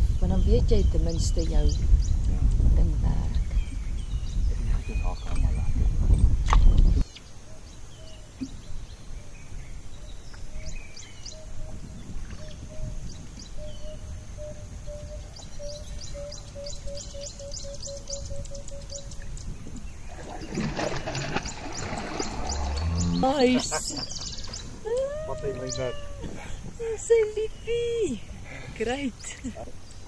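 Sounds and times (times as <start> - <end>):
low background rumble: 0.0 - 7.0
birds chirping: 0.0 - 30.0.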